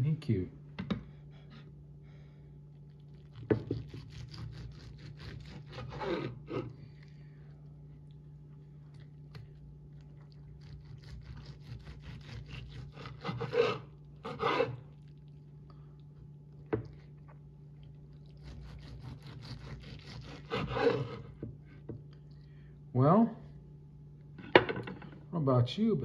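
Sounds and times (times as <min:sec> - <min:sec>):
knife sawing through crusty roast: 0:03.5 - 0:06.7, 0:10.5 - 0:15.0, 0:18.3 - 0:21.4
blade rasping on wooden board: 0:11.0 - 0:14.8.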